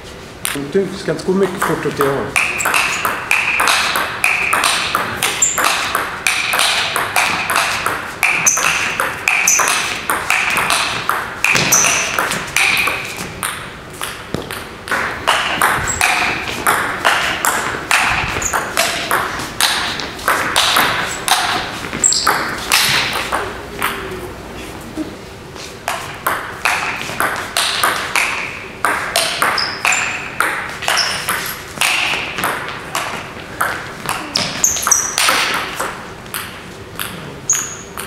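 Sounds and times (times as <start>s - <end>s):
table tennis ball clicks: 1.6s - 24.0s.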